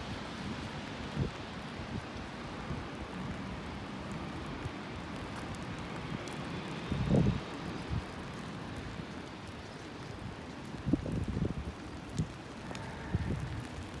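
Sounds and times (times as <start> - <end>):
traffic on wet pavement: 0.0 - 14.0
wind buffeting microphone: 6.9 - 8.2, 10.0 - 14.0.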